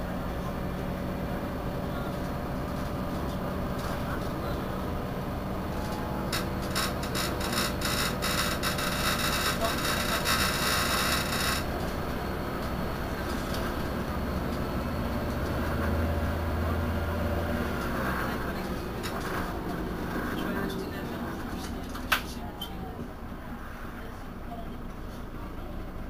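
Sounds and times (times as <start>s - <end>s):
bus engine idling: 0.0s - 26.0s
crackling rattle: 6.2s - 11.8s.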